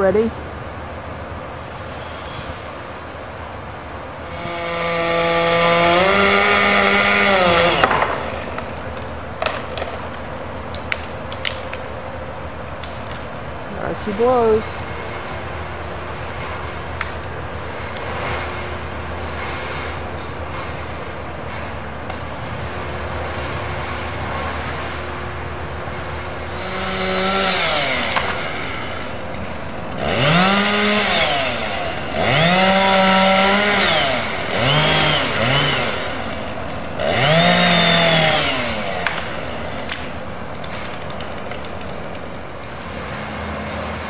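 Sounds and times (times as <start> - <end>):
chainsaw revving: 4.2 - 8.7, 26.5 - 41.1.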